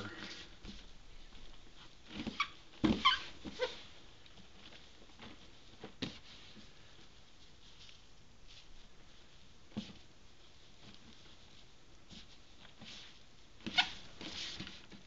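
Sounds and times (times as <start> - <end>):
short squeaks: 2.3 - 3.8.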